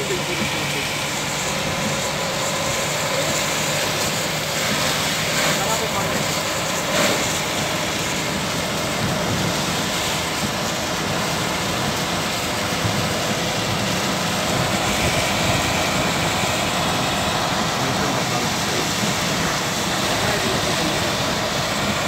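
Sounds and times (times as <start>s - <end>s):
car engine: 0.0s - 22.0s
tyres on wet road: 0.0s - 22.0s
wind noise: 7.6s - 22.0s.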